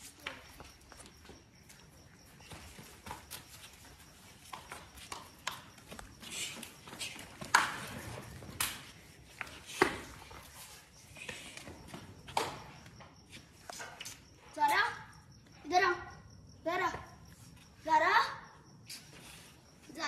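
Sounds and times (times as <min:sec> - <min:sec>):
hurried footsteps on hard floor: 0:00.3 - 0:08.4.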